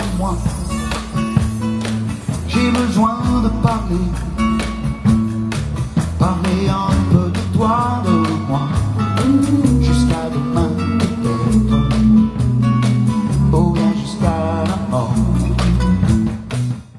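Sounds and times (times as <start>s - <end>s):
man singing into microphone: 0.0s - 1.0s, 2.5s - 4.5s, 6.2s - 16.1s
bass: 0.0s - 16.9s
guitar: 0.0s - 16.9s
steady drum beat: 0.0s - 16.9s.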